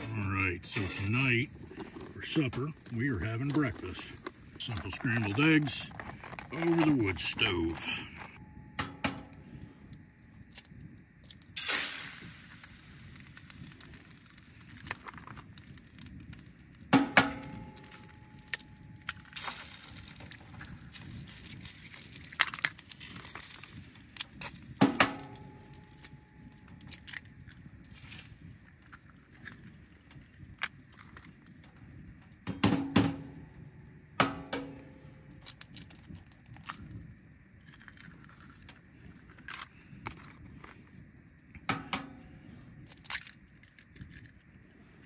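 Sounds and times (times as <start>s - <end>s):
eggshells breaking: 17.2s - 31.3s, 37.6s - 40.4s.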